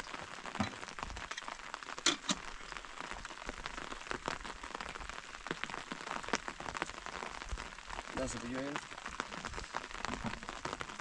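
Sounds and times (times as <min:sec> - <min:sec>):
heavy rain tapping on hard surface: 0:00.0 - 0:11.0.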